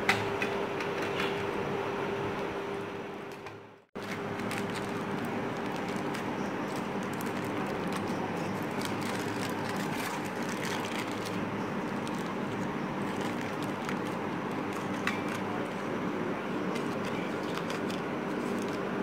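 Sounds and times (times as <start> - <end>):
machine hum: 0.0 - 19.0
aluminium foil crinkling: 4.0 - 16.0, 16.6 - 19.0.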